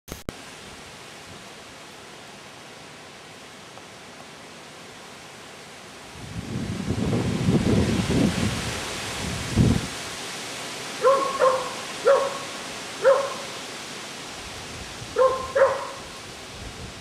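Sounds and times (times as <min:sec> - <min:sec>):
dog barking: 0:11.0 - 0:13.6, 0:15.2 - 0:16.1.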